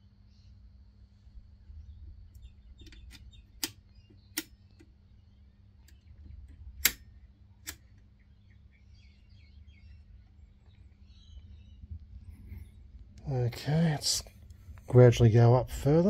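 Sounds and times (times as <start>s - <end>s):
low electrical hum: 0.0s - 16.0s
sharp clicks: 2.3s - 5.0s, 5.8s - 8.1s.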